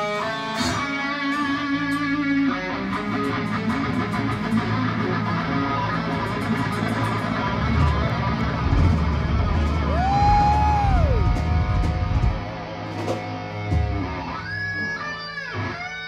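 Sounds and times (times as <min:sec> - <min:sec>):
bass guitar: 0:00.0 - 0:16.0
distorted electric guitar: 0:00.0 - 0:16.0.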